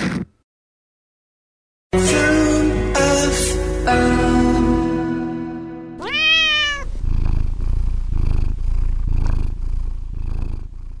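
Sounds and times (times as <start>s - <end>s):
cat meowing: 6.0s - 6.9s
cat purring: 6.0s - 11.0s.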